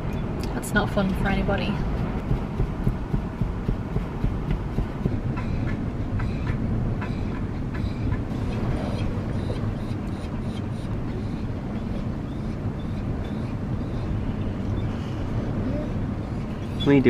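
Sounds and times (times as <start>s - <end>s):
diesel engine rumble: 0.0s - 17.0s
road noise: 0.0s - 17.0s
sharp ticks: 1.8s - 5.8s.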